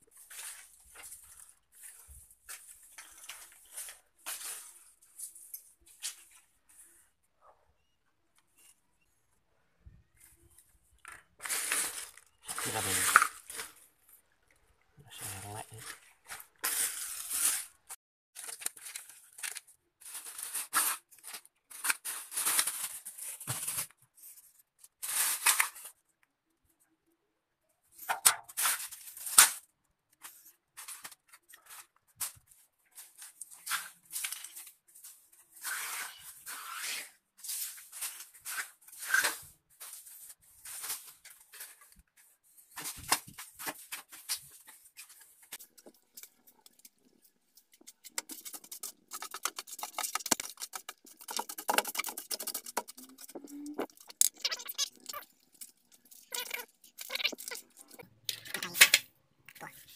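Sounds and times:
sweeping on tiled floor: 0.1s - 7.1s, 16.3s - 18.0s, 32.9s - 58.0s.

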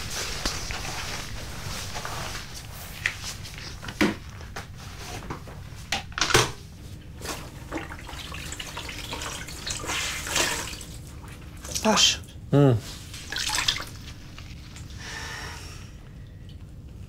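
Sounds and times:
wet mop splashing and dripping: 7.2s - 11.8s, 13.2s - 14.9s.

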